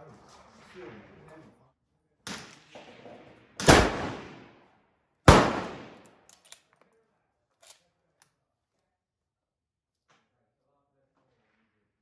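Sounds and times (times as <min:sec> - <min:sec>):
rifle shots ringing: 0:03.6 - 0:04.5, 0:05.3 - 0:06.2.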